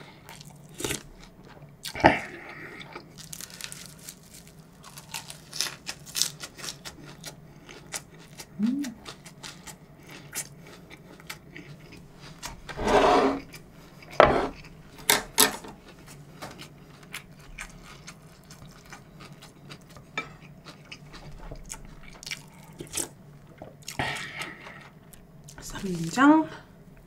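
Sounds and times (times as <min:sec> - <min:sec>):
bowl scraping across wooden table: 0:12.6 - 0:13.5, 0:14.2 - 0:14.6.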